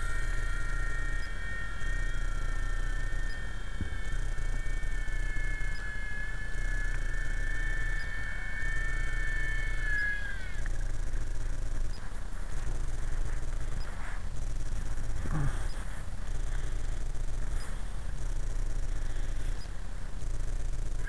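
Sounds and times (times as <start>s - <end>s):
electric helicopter motor whining: 0.0s - 21.0s
low rumble: 0.0s - 21.0s.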